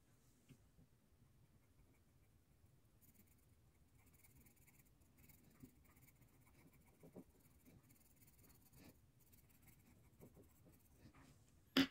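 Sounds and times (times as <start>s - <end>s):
pencil scratching on paper: 3.0s - 11.4s.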